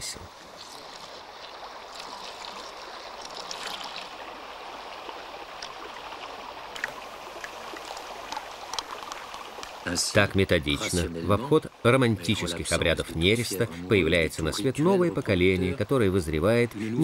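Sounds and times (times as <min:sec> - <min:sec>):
small splashes and ticks: 0:00.3 - 0:09.9
water pouring into troughs: 0:00.3 - 0:10.9.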